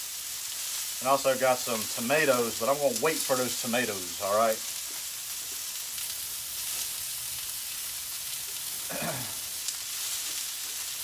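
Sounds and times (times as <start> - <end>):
vegetables sizzling on a griddle: 0.0 - 11.0.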